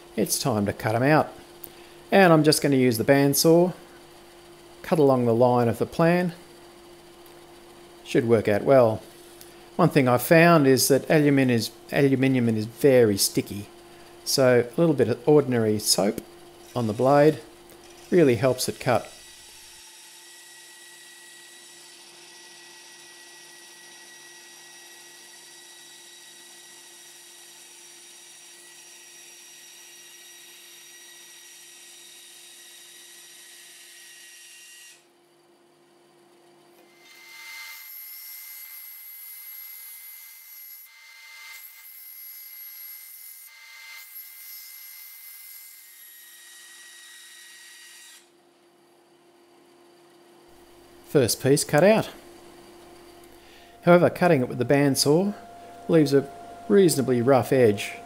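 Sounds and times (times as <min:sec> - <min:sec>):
bandsaw cutting metal: 0:15.7 - 0:35.0, 0:53.4 - 0:58.0.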